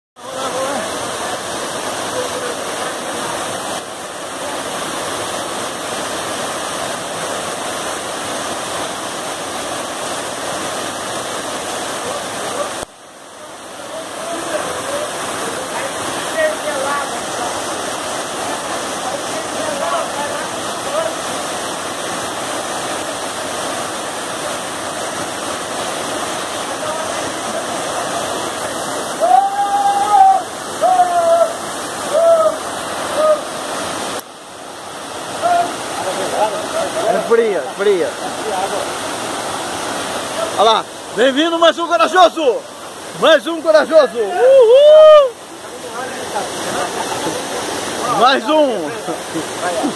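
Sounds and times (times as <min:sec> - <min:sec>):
waterfall pouring over rocks: 0:00.2 - 0:49.9
person yelling: 0:29.2 - 0:33.5, 0:35.4 - 0:35.8, 0:44.2 - 0:45.4.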